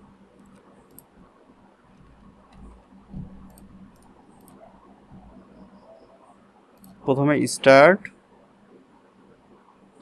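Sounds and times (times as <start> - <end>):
keyboard and mouse clicks: 0.4 - 1.1, 1.9 - 4.6, 6.8 - 7.0
soft low thump: 2.6 - 3.4.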